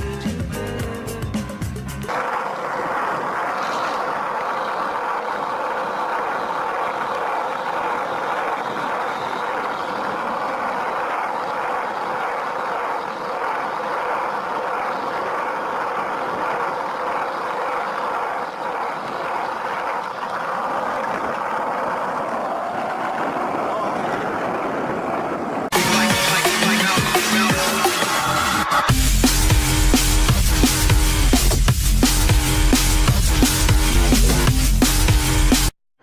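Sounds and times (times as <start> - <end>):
skateboard wheels rolling on asphalt: 1.3 - 28.6.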